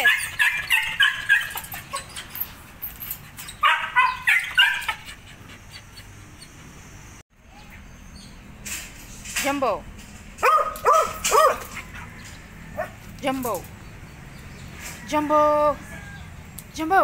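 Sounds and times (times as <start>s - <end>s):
dog whining: 0.0s - 6.9s.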